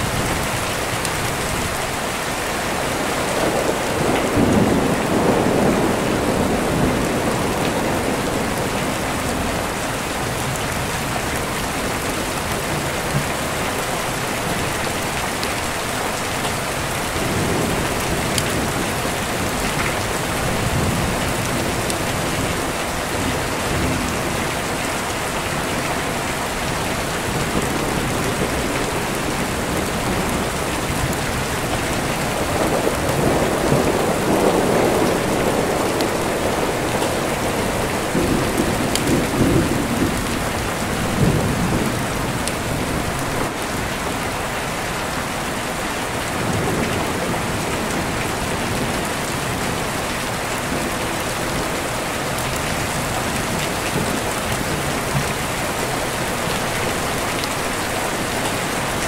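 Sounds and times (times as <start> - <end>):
heavy rain: 0.0 - 59.0
rolling thunder: 2.9 - 9.8, 17.1 - 43.6.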